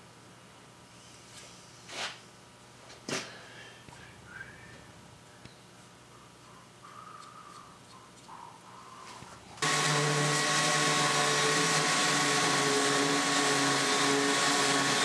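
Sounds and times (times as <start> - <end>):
orbital sander whining: 9.6 - 15.0.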